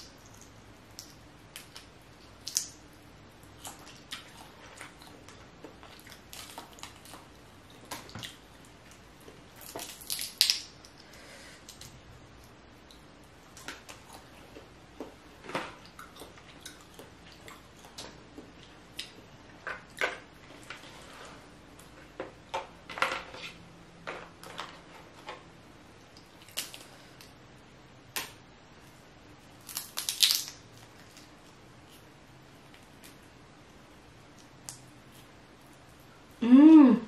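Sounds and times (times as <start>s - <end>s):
shellfish shells cracking: 0.0s - 2.8s, 9.6s - 11.9s, 26.2s - 27.3s, 29.6s - 31.4s
wet squishing of sauce: 0.0s - 20.8s.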